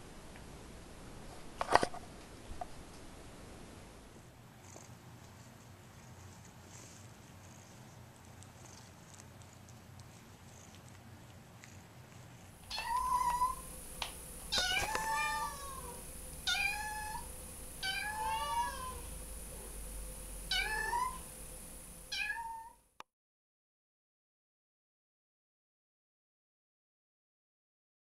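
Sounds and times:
kitten meowing: 12.7 - 13.7, 14.5 - 19.1, 20.5 - 21.3, 22.1 - 22.8.

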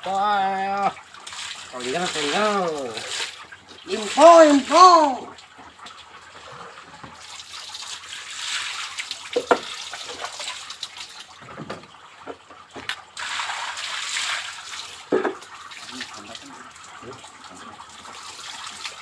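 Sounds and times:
water splashing on concrete floor: 1.2 - 4.7, 7.2 - 11.4, 12.8 - 16.6.

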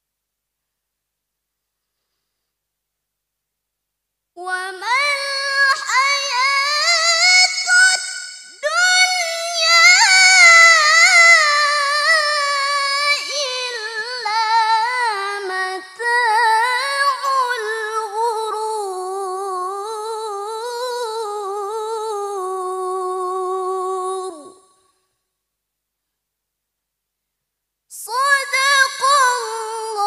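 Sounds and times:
woman reciting melodically: 4.4 - 24.8, 27.9 - 30.0.

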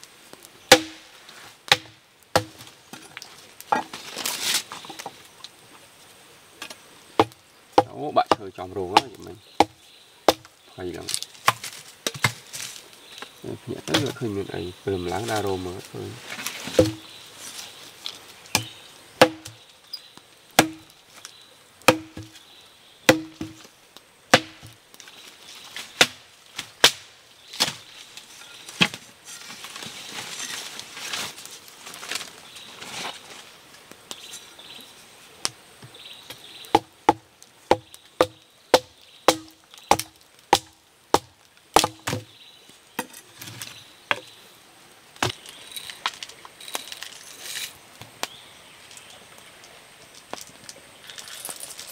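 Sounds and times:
blade chopping wood: 0.7 - 1.1, 1.7 - 2.7, 7.2 - 10.5, 11.4 - 12.4, 16.6 - 17.1, 18.5 - 19.6, 20.6 - 20.9, 21.9 - 22.4, 23.1 - 23.7, 24.3 - 24.8, 36.7 - 42.3.

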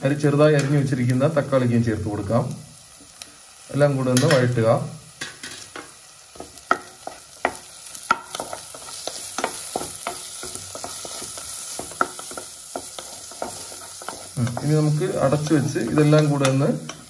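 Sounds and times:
food sizzling in a pan: 0.0 - 17.0
wooden spatula scraping a pan: 8.4 - 17.0.

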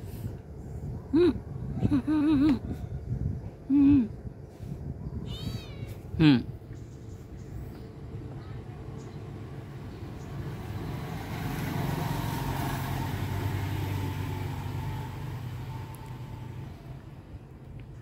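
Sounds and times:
vehicle passing by: 9.2 - 17.5.

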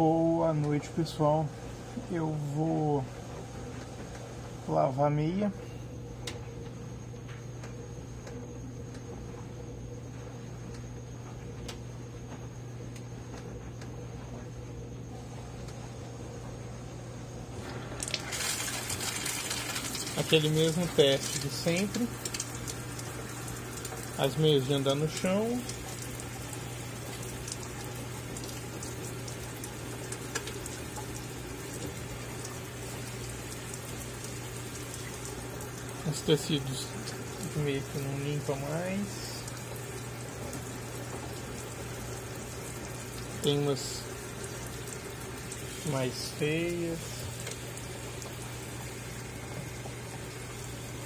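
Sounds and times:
washing machine humming: 0.0 - 51.0
faint ticks: 10.7 - 13.9.

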